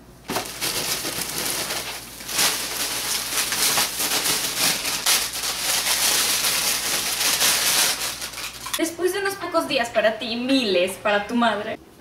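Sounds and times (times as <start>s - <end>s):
bedding rustling: 0.3s - 8.8s
plastic snack package crinkling: 0.3s - 8.8s.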